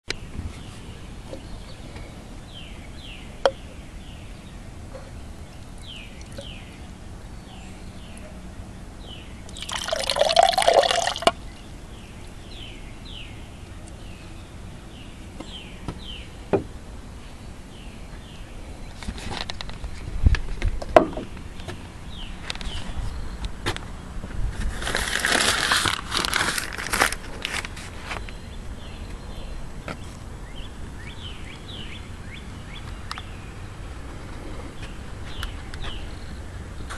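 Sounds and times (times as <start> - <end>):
small birds chirping: 0.1 - 24.2, 27.6 - 36.9
liquid pouring: 9.5 - 11.4.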